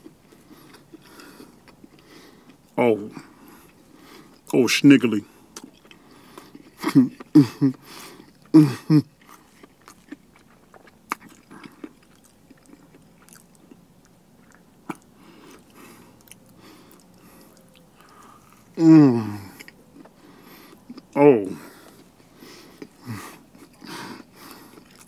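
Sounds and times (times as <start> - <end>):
person chewing with smacking: 0.0 - 4.5, 5.5 - 25.0
person humming: 18.8 - 19.6.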